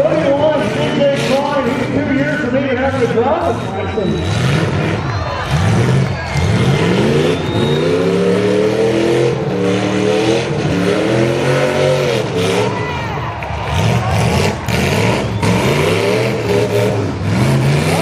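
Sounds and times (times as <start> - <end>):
car engines revving: 0.0 - 18.0.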